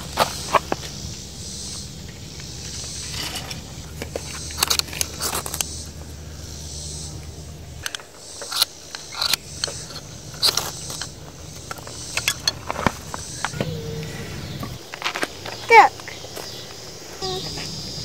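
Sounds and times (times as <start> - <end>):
striker scraping fire steel: 3.0 - 6.0.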